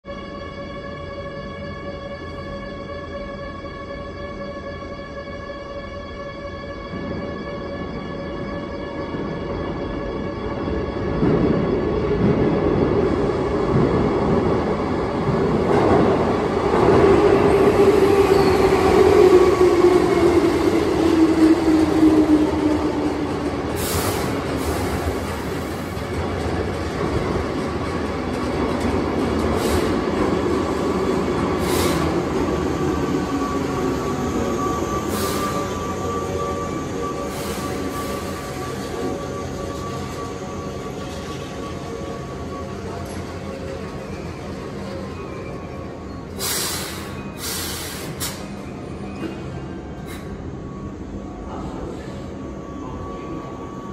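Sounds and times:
electric train running hum: 0:00.1 - 0:53.9
high brake squeal: 0:33.4 - 0:50.9.

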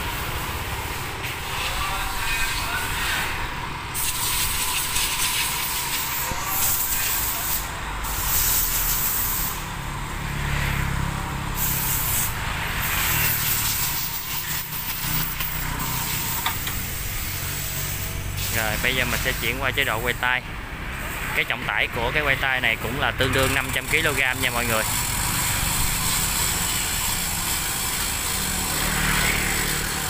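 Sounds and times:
electric hoist running: 0:03.2 - 0:20.1, 0:23.3 - 0:30.0.

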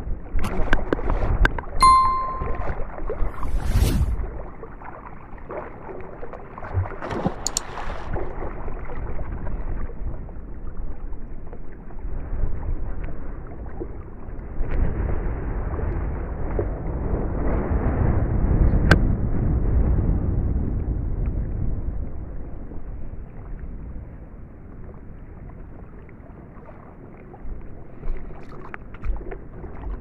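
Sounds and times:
water sloshing from wading: 0:04.6 - 0:09.9, 0:24.7 - 0:30.0
wind rumbling on microphone: 0:06.7 - 0:30.0.

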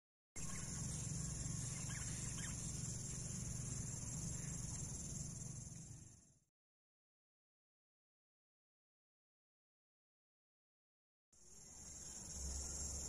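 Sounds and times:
high-pitched insect buzzing: 0:00.4 - 0:06.2, 0:11.4 - 0:13.0.

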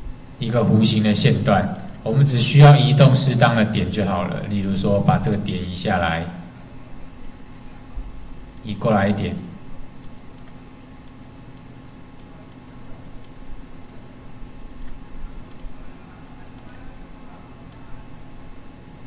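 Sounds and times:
low electrical hum and hiss: 0:00.0 - 0:19.0
computer mouse clicking: 0:01.7 - 0:02.0, 0:09.3 - 0:13.4, 0:14.7 - 0:16.9.

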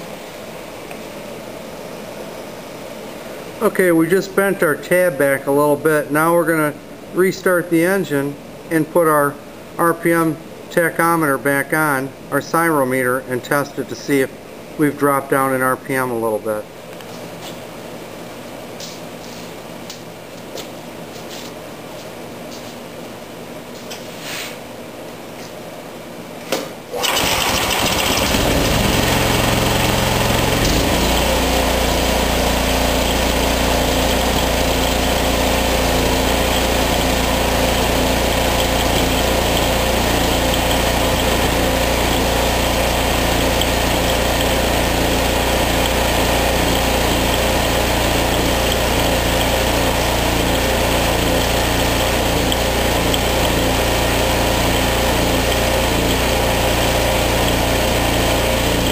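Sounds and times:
snowblower engine running: 0:27.0 - 0:58.9.

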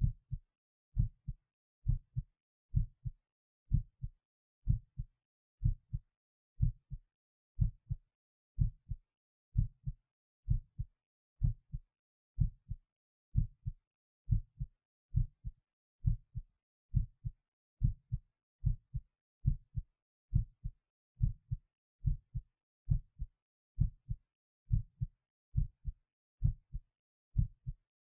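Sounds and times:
heartbeat thumps: 0:01.0 - 0:02.2, 0:02.8 - 0:03.1, 0:03.7 - 0:04.1, 0:07.6 - 0:08.0, 0:08.6 - 0:09.0, 0:09.6 - 0:11.8, 0:12.4 - 0:12.8, 0:15.2 - 0:16.2, 0:17.0 - 0:23.2, 0:23.8 - 0:26.8, 0:27.4 - 0:27.8.

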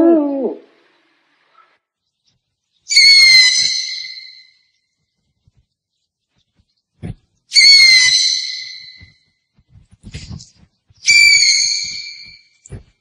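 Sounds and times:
owl screeching: 0:02.9 - 0:04.6, 0:07.5 - 0:09.2, 0:11.0 - 0:12.5
faint low thumps: 0:06.5 - 0:07.4.

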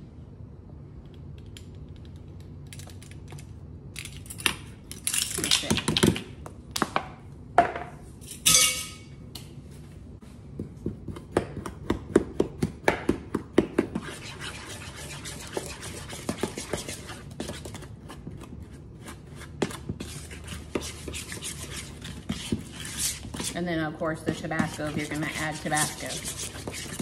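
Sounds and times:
ringing clink: 0:08.4 - 0:09.1
metal spoon scraping bowl: 0:24.4 - 0:27.0.

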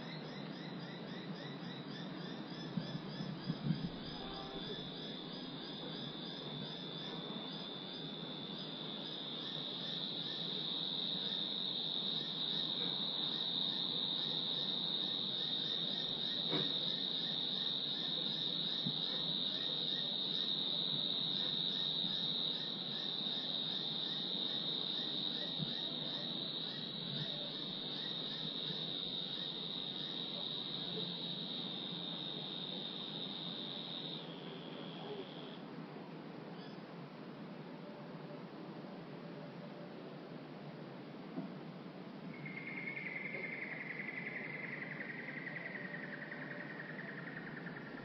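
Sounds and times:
crickets trilling: 0:00.0 - 0:38.9, 0:39.6 - 0:48.0.

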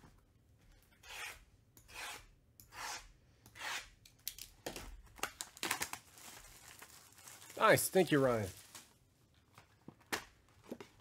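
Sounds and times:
plastic wrap crinkling: 0:05.1 - 0:10.7.

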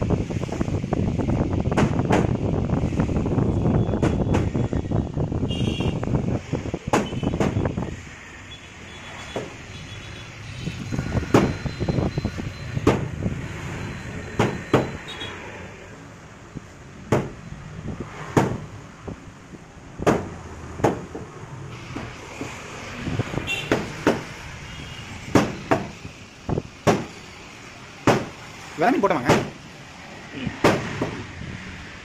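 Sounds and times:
steady background noise: 0:00.0 - 0:32.0
knife chopping onto wood: 0:17.1 - 0:17.4, 0:18.3 - 0:18.6, 0:28.1 - 0:28.3, 0:29.3 - 0:29.6.

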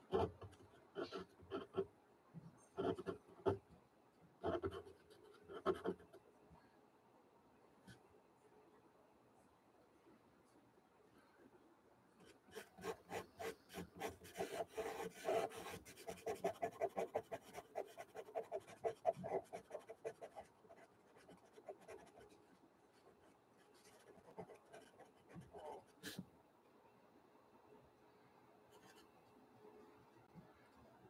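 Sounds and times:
pencil scratching on paper: 0:02.8 - 0:03.6, 0:12.5 - 0:22.4, 0:23.8 - 0:26.2.

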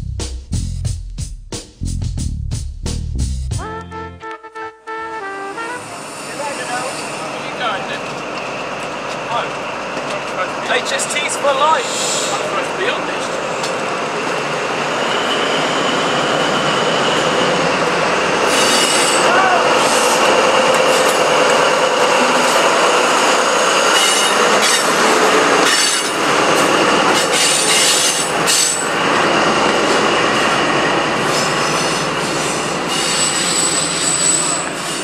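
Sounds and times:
train rolling past: 0:05.4 - 0:35.0
train clattering over track: 0:06.3 - 0:15.2, 0:16.1 - 0:35.0
wheel squeal on rails: 0:11.1 - 0:12.5, 0:13.2 - 0:35.0.

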